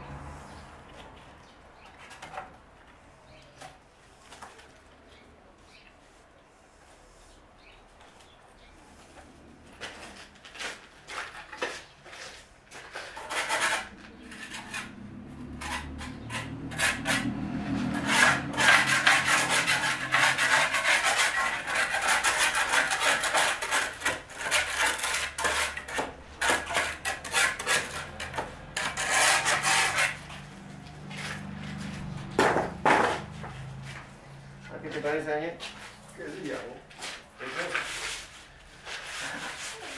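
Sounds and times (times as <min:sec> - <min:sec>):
trowel scraping cement on wall: 0:09.8 - 0:32.0, 0:37.0 - 0:39.9.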